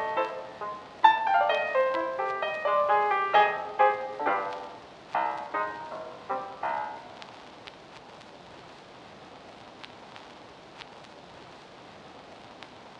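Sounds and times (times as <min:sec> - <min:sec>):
closing music notes: 0:00.0 - 0:07.2
steady hiss: 0:00.0 - 0:12.9
faint clicks: 0:09.5 - 0:11.7, 0:12.3 - 0:12.8.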